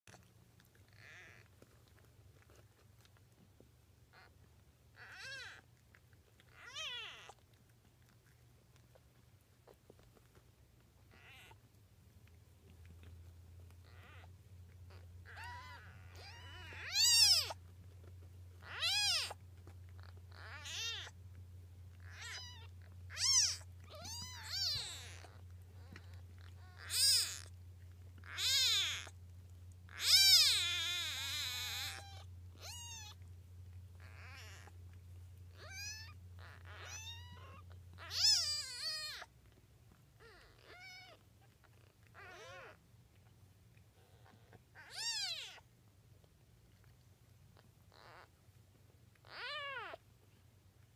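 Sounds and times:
kittens mewing: 0:00.8 - 0:01.5, 0:04.1 - 0:05.7, 0:06.4 - 0:07.4, 0:11.1 - 0:11.6, 0:13.8 - 0:14.3, 0:14.9 - 0:17.6, 0:18.6 - 0:21.2, 0:22.0 - 0:27.6, 0:28.2 - 0:29.2, 0:29.9 - 0:33.2, 0:34.0 - 0:34.8, 0:35.5 - 0:39.3, 0:41.8 - 0:42.8, 0:44.0 - 0:45.6, 0:47.6 - 0:48.3, 0:49.2 - 0:50.0.

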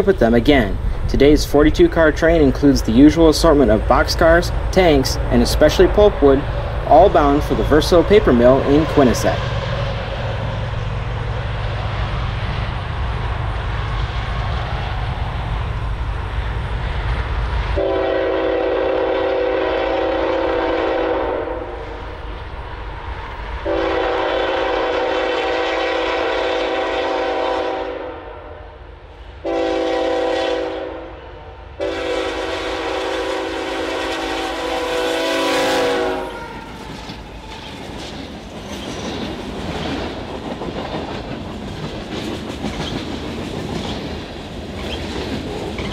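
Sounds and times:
locomotive air horn blasts: 0:17.8 - 0:21.8, 0:23.6 - 0:28.8, 0:29.4 - 0:36.7
train wheels clicking on rail joints: 0:36.4 - 0:45.9.

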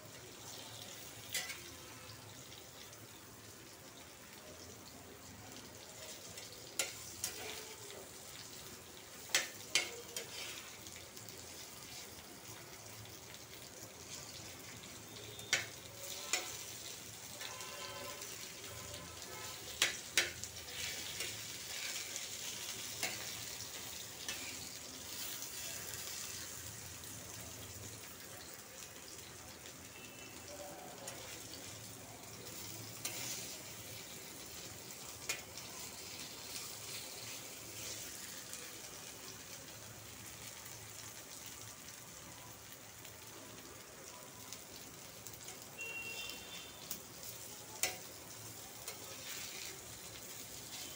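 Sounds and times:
food sizzling in oil: 0:00.0 - 0:50.9
metal spatula scraping pan: 0:19.4 - 0:23.4.

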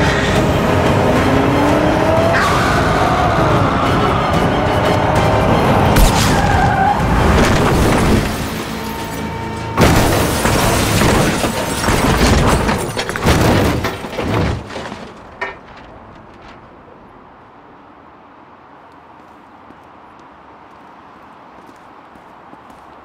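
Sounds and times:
music: 0:00.0 - 0:12.6
crash with shattering debris: 0:05.9 - 0:16.8.

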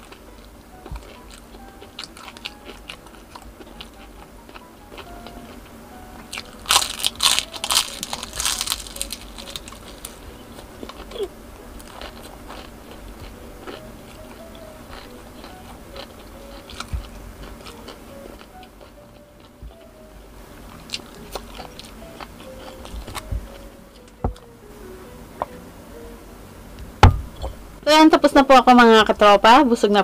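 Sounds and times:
crunching fried food: 0:00.0 - 0:24.2.

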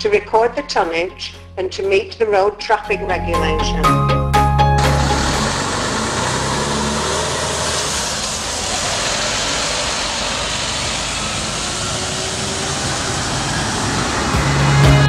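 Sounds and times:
lorry engine and tyres rushing: 0:03.8 - 0:15.0.

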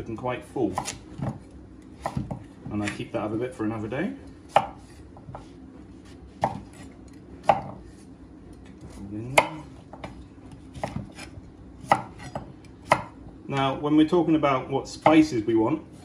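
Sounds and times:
knife chopping on wooden board: 0:00.7 - 0:03.0, 0:04.5 - 0:07.8, 0:08.8 - 0:13.2.

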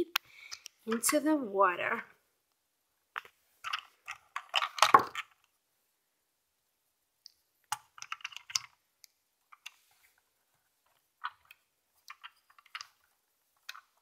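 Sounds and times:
plastic toy clicks and knocks: 0:03.2 - 0:05.5, 0:07.7 - 0:08.8.

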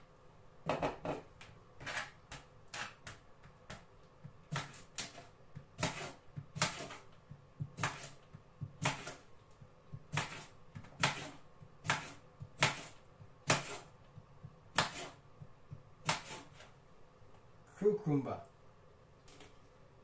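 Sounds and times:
knife slicing cucumber: 0:01.8 - 0:16.7.

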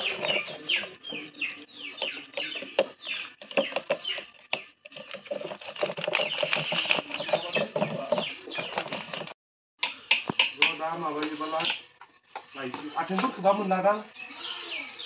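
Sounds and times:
birds calling: 0:00.0 - 0:15.0
stick scraping inside plastic jar: 0:04.8 - 0:07.6.

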